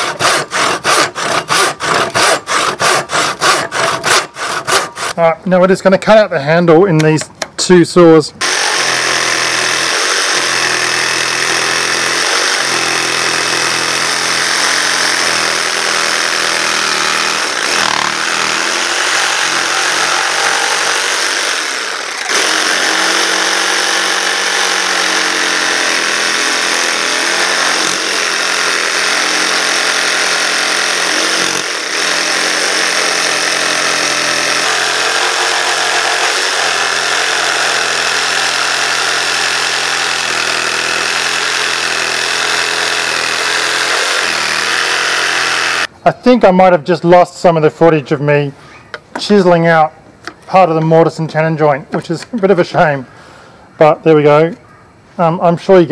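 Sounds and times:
jigsaw sawing through wood: 0:00.0 - 0:05.2, 0:08.4 - 0:45.9.

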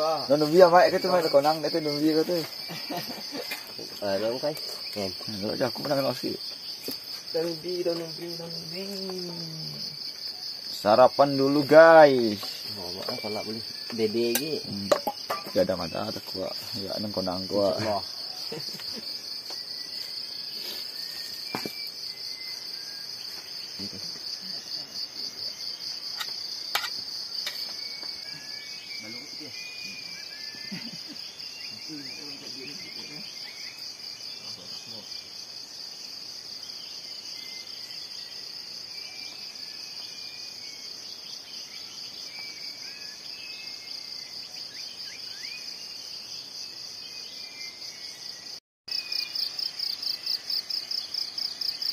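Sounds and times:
high-pitched insect trilling: 0:00.0 - 0:51.9
faint chirps: 0:07.4 - 0:35.1.

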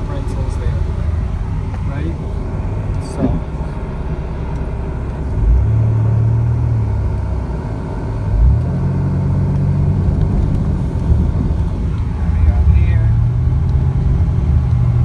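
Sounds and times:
car engine: 0:00.0 - 0:15.0
road noise: 0:00.0 - 0:15.0
low thump: 0:01.6 - 0:03.7.

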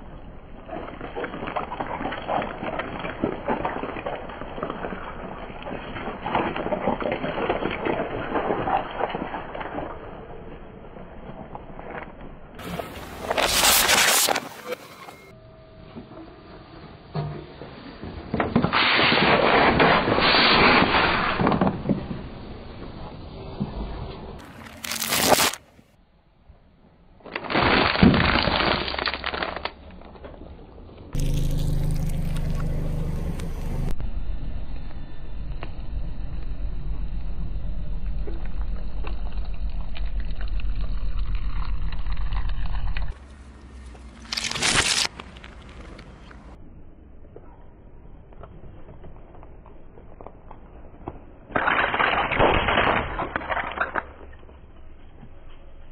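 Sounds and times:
car tyre rolling over asphalt: 0:00.0 - 0:14.6, 0:27.2 - 0:55.9
grit crackling under tyre: 0:00.0 - 0:14.7, 0:24.4 - 0:25.9, 0:27.2 - 0:55.9
plastic bottles crunching under tyre: 0:12.6 - 0:14.6, 0:24.4 - 0:25.7, 0:27.3 - 0:30.1, 0:44.0 - 0:46.6.

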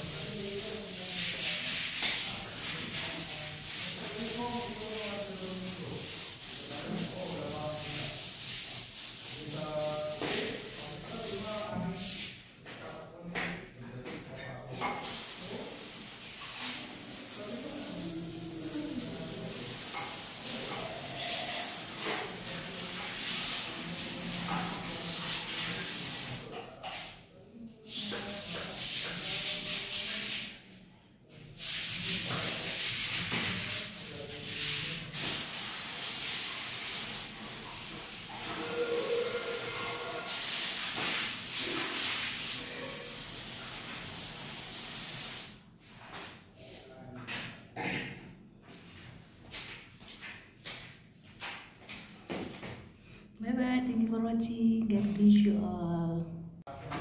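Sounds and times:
bidet sprayer spraying water: 0:15.0 - 0:26.4.

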